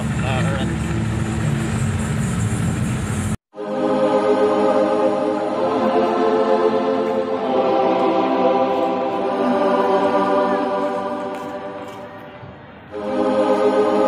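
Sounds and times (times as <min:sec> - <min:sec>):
choir singing sustained chords: 0:03.5 - 0:14.0.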